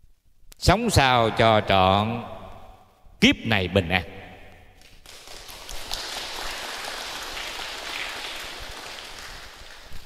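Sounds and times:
audience applauding: 4.9s - 10.0s.

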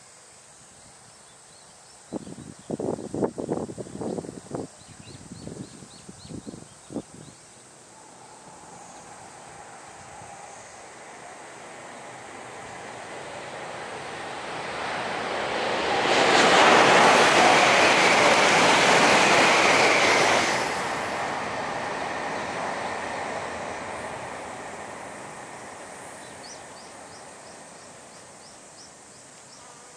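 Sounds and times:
high-speed train passing: 6.9s - 29.6s.

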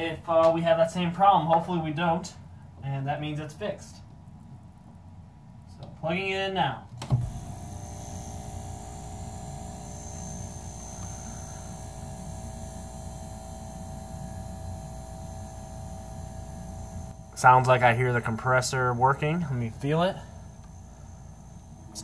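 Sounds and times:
fridge compressor humming: 4.6s - 22.0s.

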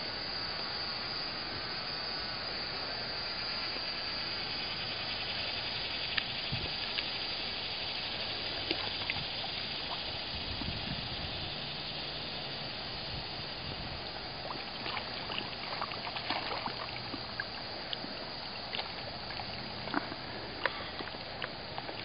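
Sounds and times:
water trickling: 4.9s - 22.0s
light splashes: 14.3s - 22.0s.

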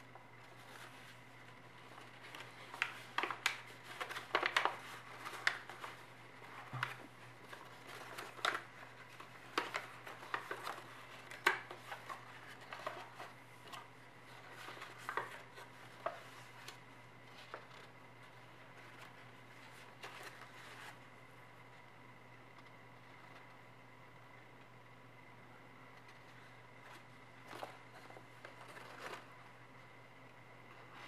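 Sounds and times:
stiff paper crackling and rustling: 0.0s - 21.1s, 26.0s - 29.7s.

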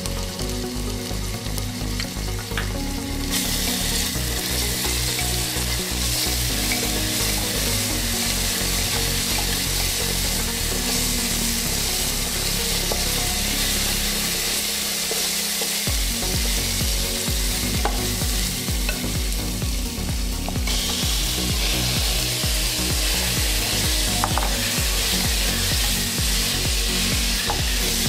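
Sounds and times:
food sizzling in a pan: 0.0s - 28.0s.

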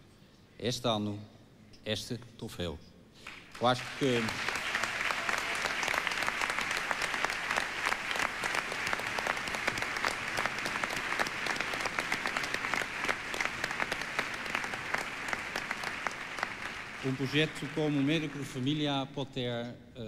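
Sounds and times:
audience applauding: 3.2s - 19.1s.

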